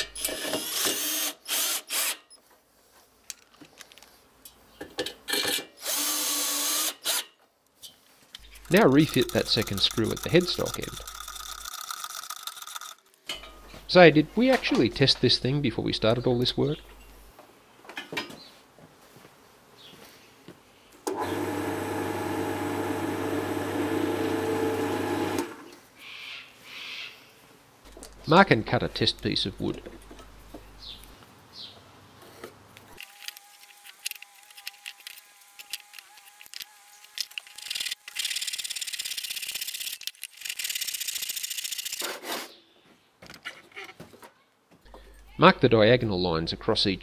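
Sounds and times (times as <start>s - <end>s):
lathe motor humming: 21.1s - 25.6s.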